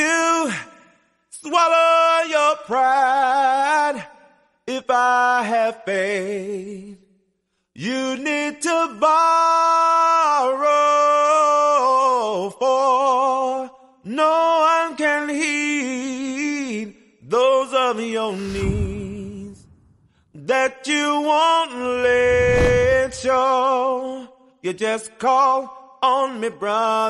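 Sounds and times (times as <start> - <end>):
low thud: 18.4 - 20.0, 22.1 - 23.3.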